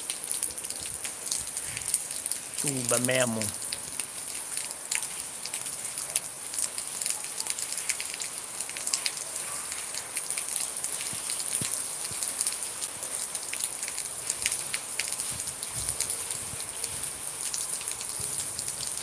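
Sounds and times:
rain hissing: 0.0s - 19.0s
raindrops ticking on hard surfaces: 0.0s - 19.0s.

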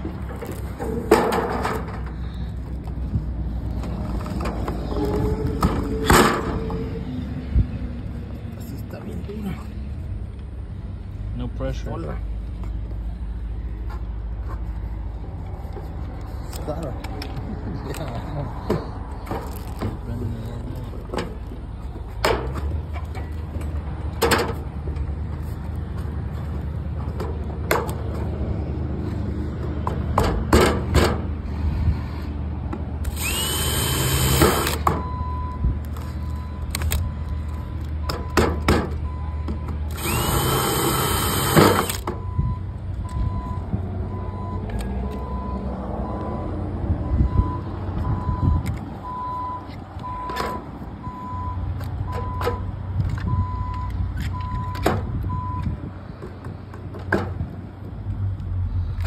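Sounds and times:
cordless drill whining: 33.0s - 34.8s, 39.9s - 42.1s.

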